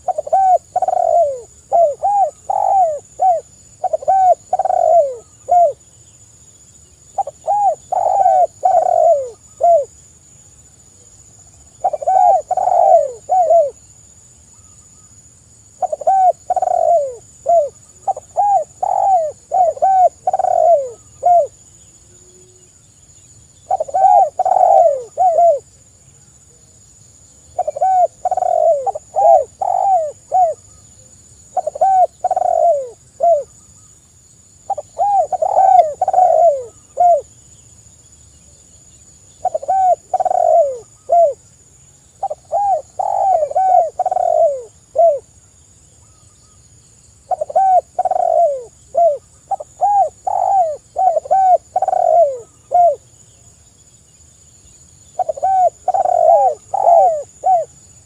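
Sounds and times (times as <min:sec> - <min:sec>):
dove cooing: 0:00.0 - 0:05.8, 0:07.2 - 0:09.9, 0:11.8 - 0:13.8, 0:15.8 - 0:22.6, 0:23.6 - 0:25.7, 0:27.5 - 0:30.8, 0:31.5 - 0:33.6, 0:34.7 - 0:37.3, 0:39.4 - 0:41.4, 0:42.2 - 0:45.3, 0:47.3 - 0:53.1, 0:55.1 - 0:57.8.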